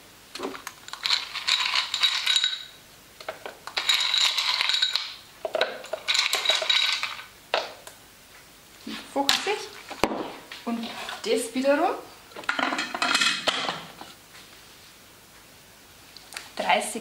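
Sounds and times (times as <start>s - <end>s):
ice cubes clattering into metal bowl: 0.5s - 2.8s, 3.7s - 7.3s.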